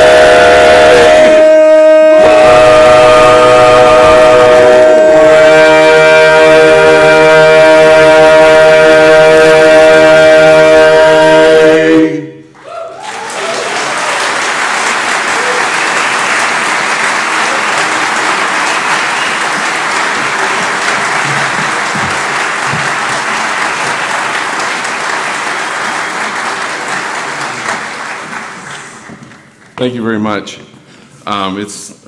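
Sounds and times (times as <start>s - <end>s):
male vocal quartet singing a chord: 0.0s - 12.4s
audience applause: 12.6s - 29.8s.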